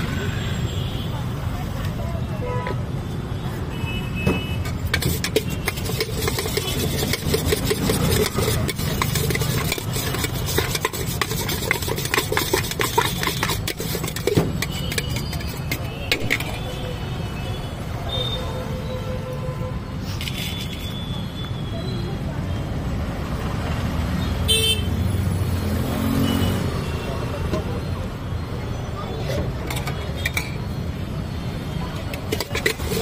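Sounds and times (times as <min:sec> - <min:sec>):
street traffic rumble: 0:00.0 - 0:33.0
steel utensils clinking in pot: 0:04.8 - 0:16.6, 0:32.0 - 0:33.0.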